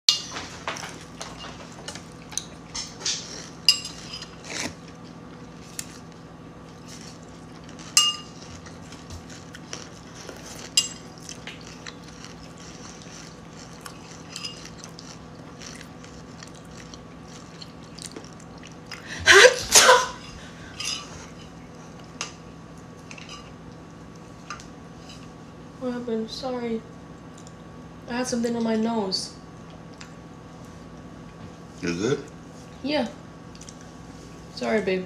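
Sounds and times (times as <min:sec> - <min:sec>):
steady low hum: 0:00.1 - 0:35.0
spoon clinking against ceramic bowl: 0:08.0 - 0:08.4.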